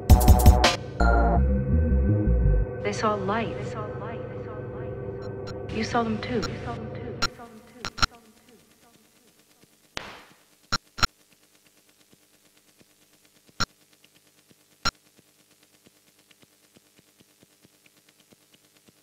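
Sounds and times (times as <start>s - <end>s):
sharp pitched clicks: 7.2s - 8.2s.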